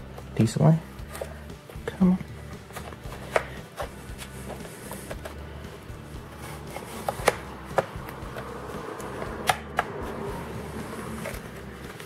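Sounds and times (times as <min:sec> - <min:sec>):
plastic clips snapping loose: 0:07.0 - 0:08.5, 0:09.4 - 0:10.0.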